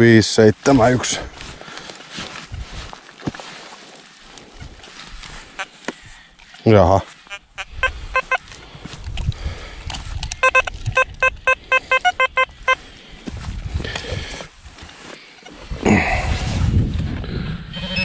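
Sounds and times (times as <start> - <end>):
metal detector short beeps: 7.3 - 8.4, 10.4 - 12.8, 17.8 - 18.0.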